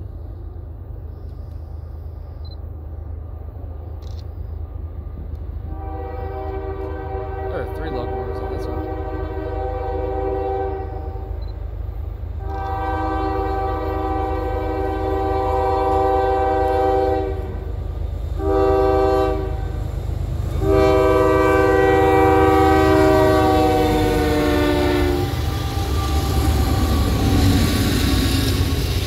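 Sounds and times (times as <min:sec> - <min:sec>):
locomotive rumble: 0:00.0 - 0:29.0
locomotive air horn blasts: 0:05.7 - 0:11.4, 0:12.4 - 0:17.6, 0:18.4 - 0:19.8, 0:20.5 - 0:27.3.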